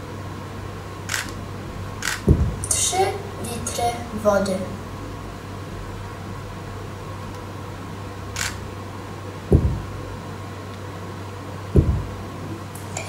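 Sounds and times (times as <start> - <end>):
steady low hum: 0.0 - 13.0
dull low thumps: 2.2 - 2.7, 9.5 - 10.2, 11.7 - 12.6.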